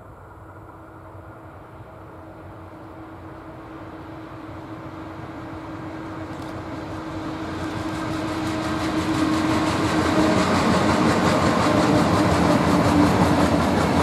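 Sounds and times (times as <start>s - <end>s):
electric locomotive rumble: 0.0s - 14.0s
wheels clattering on rails: 6.2s - 14.0s.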